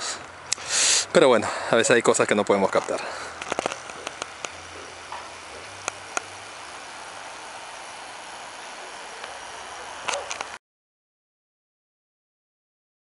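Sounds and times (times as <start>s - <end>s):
outdoor background hiss: 0.0s - 10.6s
sharp clicks: 2.3s - 6.4s, 10.0s - 10.6s.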